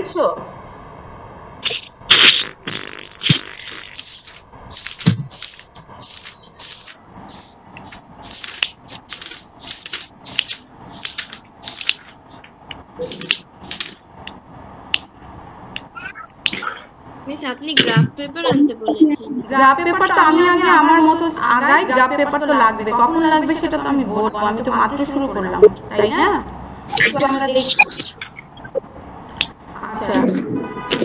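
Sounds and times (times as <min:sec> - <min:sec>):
short crackling scraping noises: 0:01.6 - 0:14.0.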